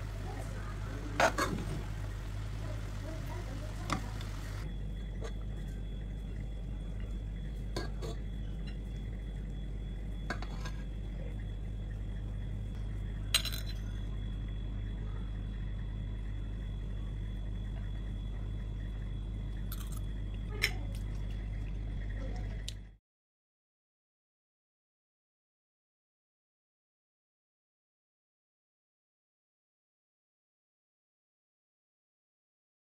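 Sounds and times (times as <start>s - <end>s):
steady low hum: 0.0s - 23.0s.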